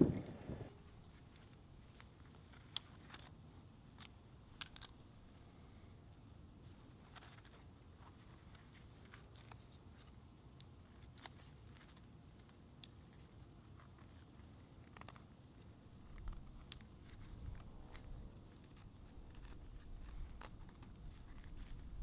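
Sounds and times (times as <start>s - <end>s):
knife shaving wood: 6.7s - 22.0s.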